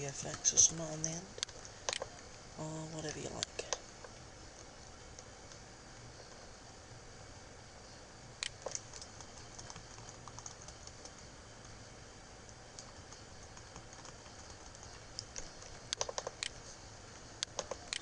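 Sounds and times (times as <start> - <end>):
computer keyboard keys clicking: 8.4 - 11.3, 12.5 - 16.6, 17.4 - 18.0.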